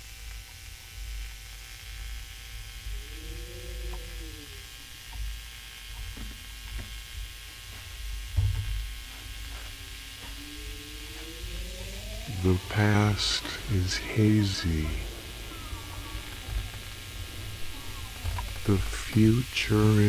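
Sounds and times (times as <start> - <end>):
low droning rumble with hiss: 0.0 - 20.0
wavering tone: 2.8 - 4.7, 9.5 - 20.0
faint ticks: 2.9 - 8.0.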